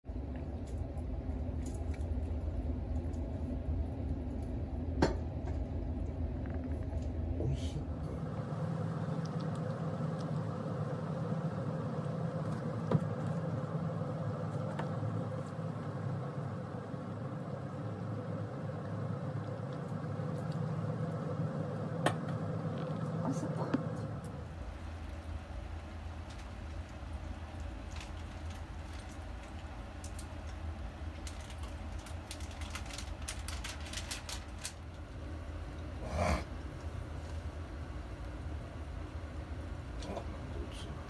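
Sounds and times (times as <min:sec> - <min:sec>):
indoor hum: 0:00.0 - 0:41.0.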